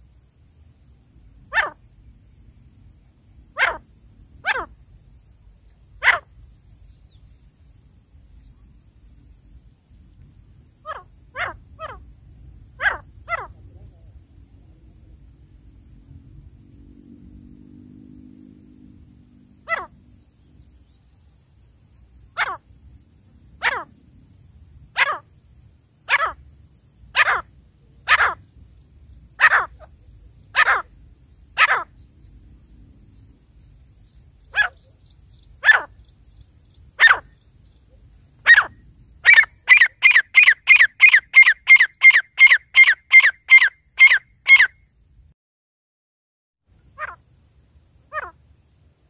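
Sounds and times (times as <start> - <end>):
francolin calling: 1.4 - 2.1, 2.9 - 9.8, 10.7 - 13.9, 18.7 - 44.8, 46.7 - 47.3, 48.0 - 48.7.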